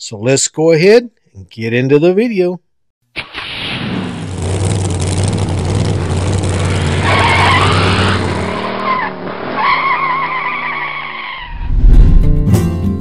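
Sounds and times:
car engine drone: 3.8s - 11.4s
tires squealing: 3.9s - 11.6s.

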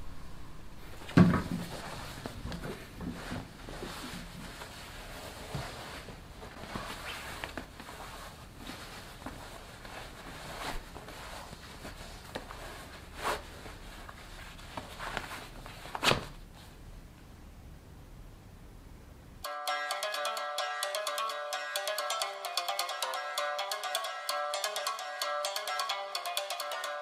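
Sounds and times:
cloth belt rustling and scraping: 1.7s - 16.7s.

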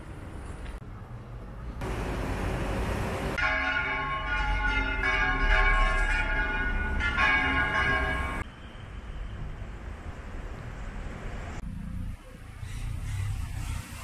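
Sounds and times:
street noise hiss: 0.0s - 14.0s
church bells ringing: 3.4s - 8.5s.

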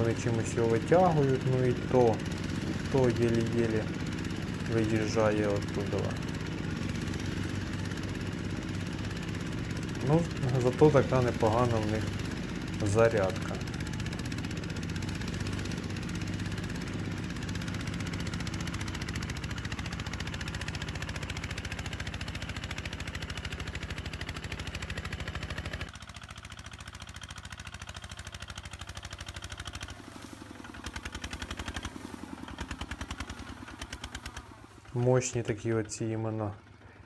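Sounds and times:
diesel tractor engine chugging: 0.0s - 37.0s.

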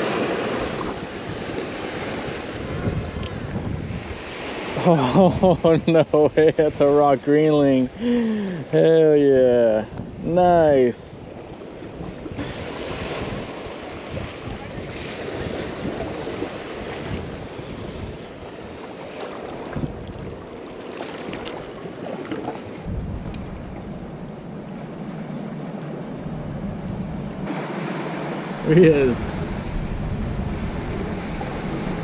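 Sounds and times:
wind on microphone: 0.0s - 4.7s, 9.8s - 18.9s, 19.5s - 20.5s, 22.8s - 32.0s
surf washing against rocks: 0.0s - 11.0s, 11.9s - 32.0s.

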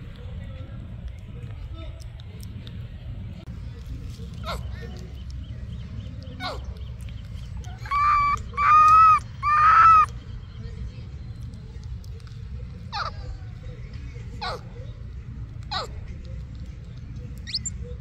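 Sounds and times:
loud animal calls: 7.8s - 10.1s.

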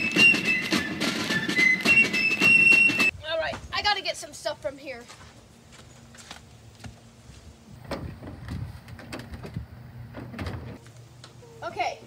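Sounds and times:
rattling knocks of metal door: 7.8s - 10.8s.

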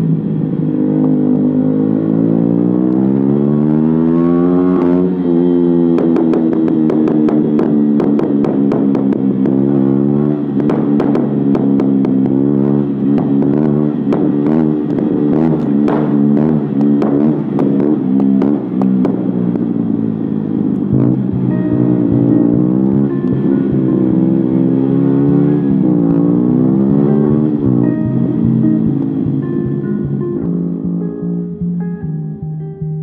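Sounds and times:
motorcycle engine accelerating: 0.0s - 33.0s
exhaust pops and crackles: 5.8s - 20.1s.

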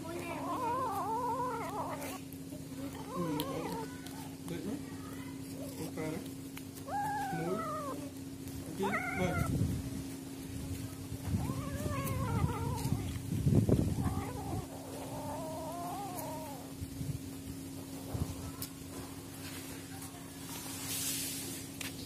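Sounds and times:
kittens yowling and meowing: 0.0s - 4.5s, 6.8s - 9.8s, 10.8s - 17.0s
kittens scuffling: 0.0s - 22.0s.

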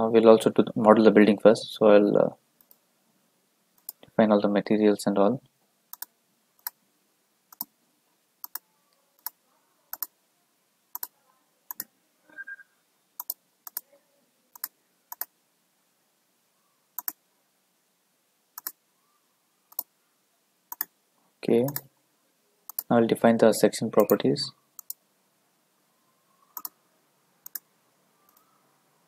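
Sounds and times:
computer mouse button clicking: 9.2s - 10.1s, 17.0s - 17.2s.

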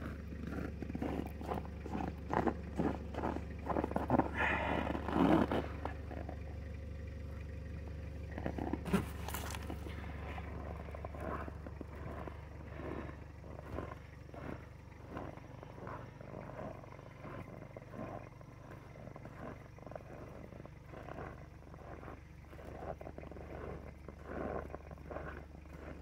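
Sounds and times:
diesel engine idling: 0.0s - 26.0s
footsteps in snow: 8.4s - 16.6s.

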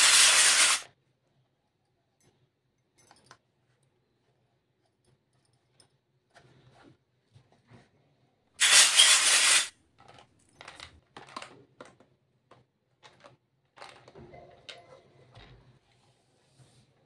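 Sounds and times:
loud hiss-like noise: 0.0s - 0.8s, 8.6s - 9.7s
plastic toy pieces clicking: 0.0s - 0.8s.

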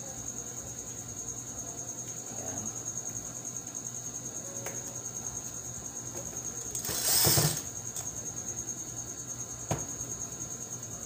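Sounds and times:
cordless drill spinning: 6.7s - 7.7s.

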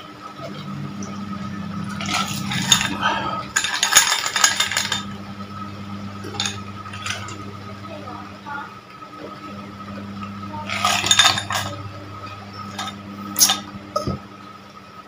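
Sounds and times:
ice cubes clinking in a glass: 1.9s - 5.2s, 6.3s - 7.4s, 10.7s - 11.8s.

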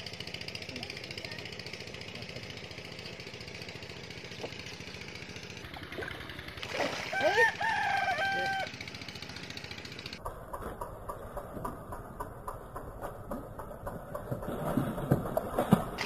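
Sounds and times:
small engine ticking: 0.0s - 16.0s
water splashing: 5.7s - 7.6s, 13.9s - 16.0s.

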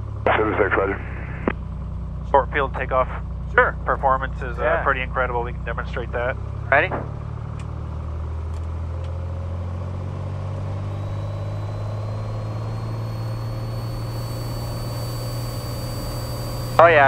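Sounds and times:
faint high whine: 10.2s - 17.0s
aircraft engine running at high power: 10.6s - 17.0s.

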